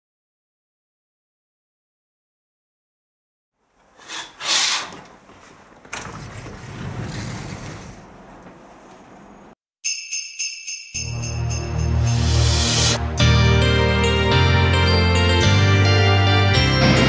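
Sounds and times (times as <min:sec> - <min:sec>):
curtain swishing: 0:03.8 - 0:08.2
sliding window opening: 0:03.8 - 0:09.2.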